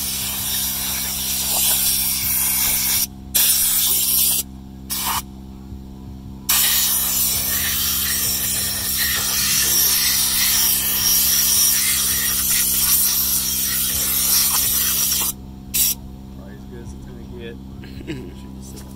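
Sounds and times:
compressed air hissing: 0:00.0 - 0:05.3, 0:06.5 - 0:16.0.

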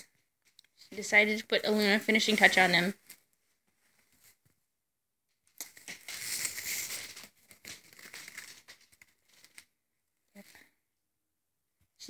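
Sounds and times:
straw hats rustling and crackling: 0:05.4 - 0:10.7.

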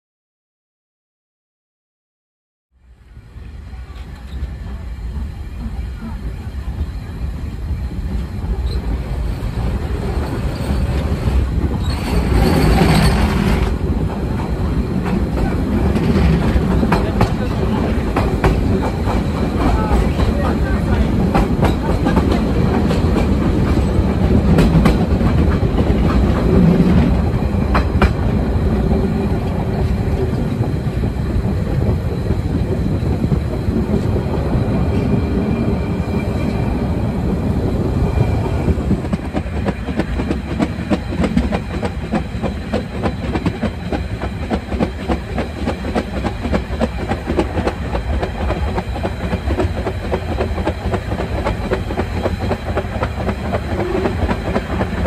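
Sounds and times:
steam train running: 0:02.8 - 0:55.0
wheels clattering over rails: 0:09.7 - 0:28.4.

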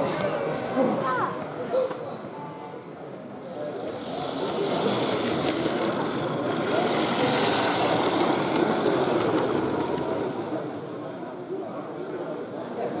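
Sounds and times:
hall chatter: 0:00.0 - 0:13.0
model train rolling rumble: 0:03.2 - 0:12.6.

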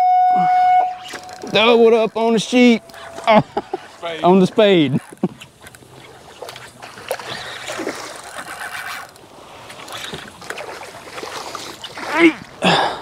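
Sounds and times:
fish splashing at water surface: 0:05.6 - 0:12.6.

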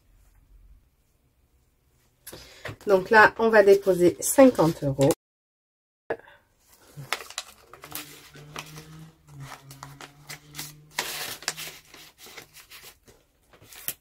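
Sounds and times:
paper rustle: 0:06.6 - 0:14.0
paper crinkling and plastic clicks: 0:06.7 - 0:14.0.

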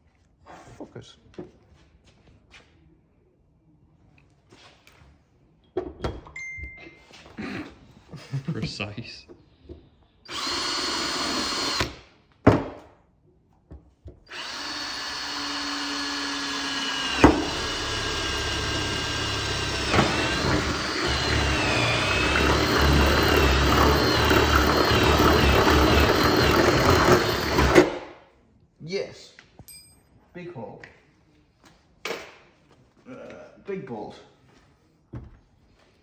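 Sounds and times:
cordless drill whining: 0:10.3 - 0:12.0, 0:14.3 - 0:28.0.

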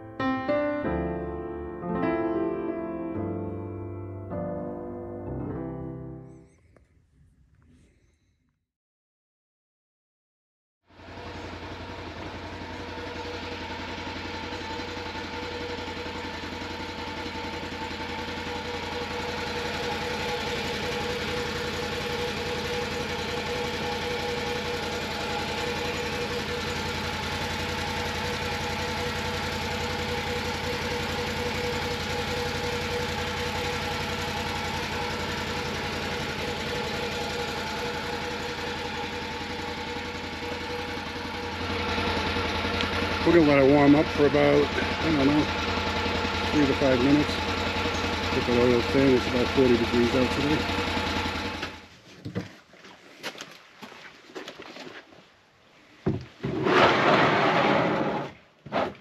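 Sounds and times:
engine idling: 0:10.9 - 0:52.0.

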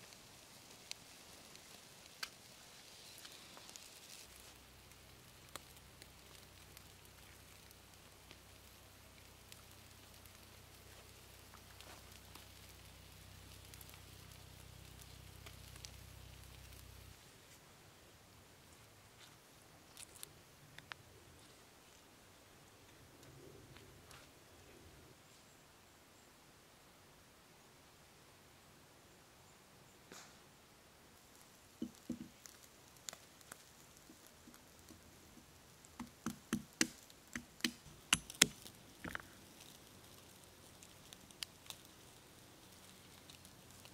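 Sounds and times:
wood fire crackling and popping: 0:00.0 - 0:17.4, 0:19.2 - 0:21.5, 0:31.2 - 0:43.9
hatchet knocking against a log: 0:36.0 - 0:38.6.

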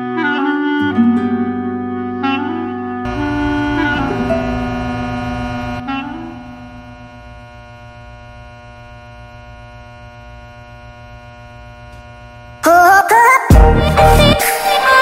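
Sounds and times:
woodwind-like phrase: 0:00.0 - 0:07.0
low pulsing hum: 0:03.0 - 0:12.6
sustained drone: 0:03.0 - 0:12.7
loud music with sung melody: 0:12.7 - 0:15.0.

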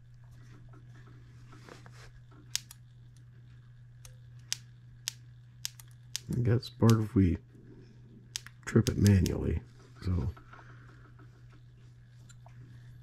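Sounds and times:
steady low hum: 0:00.0 - 0:13.0
ignition spark snapping: 0:02.5 - 0:03.2, 0:04.0 - 0:07.1, 0:08.3 - 0:09.4.

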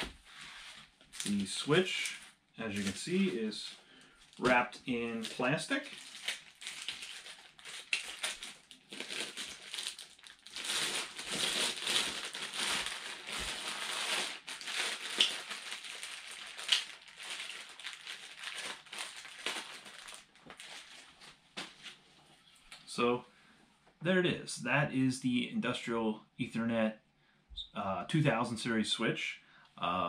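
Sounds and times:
plastic bag crinkling: 0:00.0 - 0:21.4.

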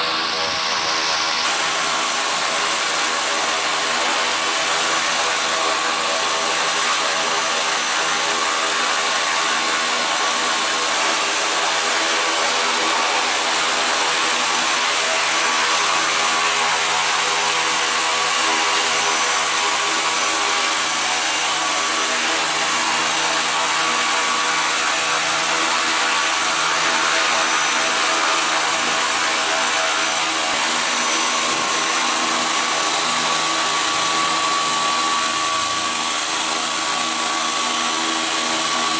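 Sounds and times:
electric motor whine: 0:00.0 - 0:38.9
rotor blades rushing: 0:00.0 - 0:38.9.

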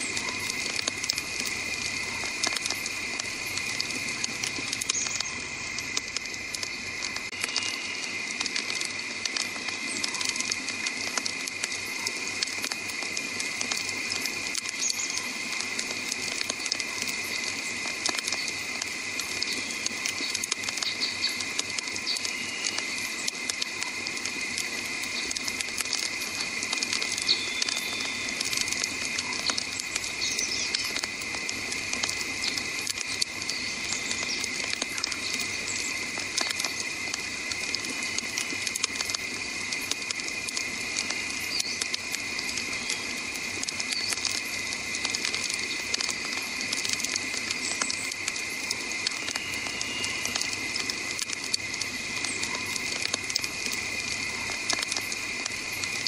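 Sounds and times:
campfire crackling and popping: 0:00.0 - 0:56.0
steady high-pitched tone: 0:48.6 - 0:56.0.

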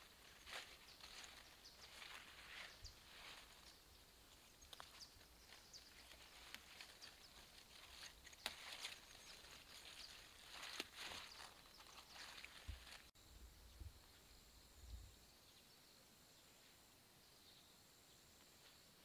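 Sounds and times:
rustling of leafy plants: 0:00.0 - 0:13.1.

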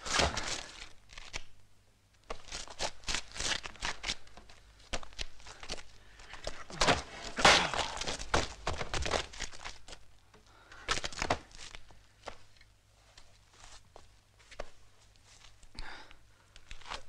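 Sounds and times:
fistfight scuffling: 0:02.3 - 0:10.1, 0:10.8 - 0:12.5.

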